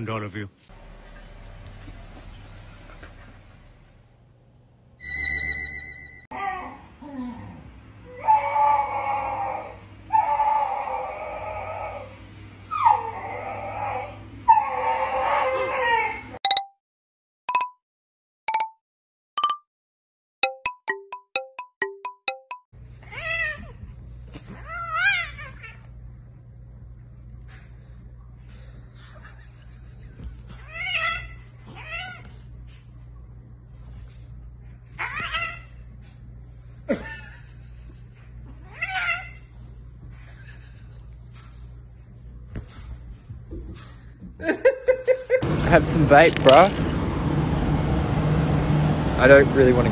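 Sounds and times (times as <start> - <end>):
small dog whining and howling: 5.0 - 16.4, 24.4 - 25.9, 30.6 - 32.4, 35.0 - 35.7
cat yowling: 24.6 - 25.8, 38.6 - 39.4.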